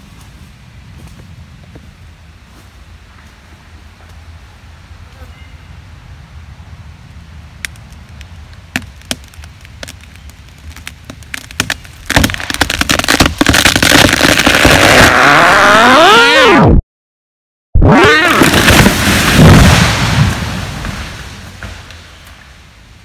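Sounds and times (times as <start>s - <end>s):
tree wood cracking and splintering: 7.6s - 16.1s, 17.9s - 22.6s
sliding falling tone: 14.5s - 16.8s, 17.8s - 20.5s.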